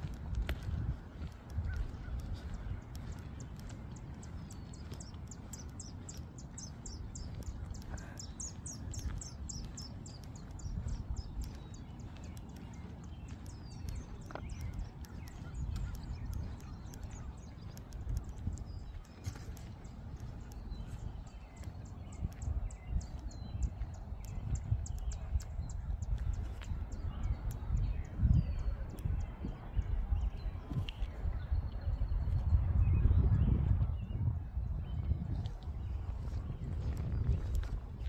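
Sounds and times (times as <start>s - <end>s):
rapid high ticks: 0.0s - 27.8s
birds chirping: 0.0s - 38.0s.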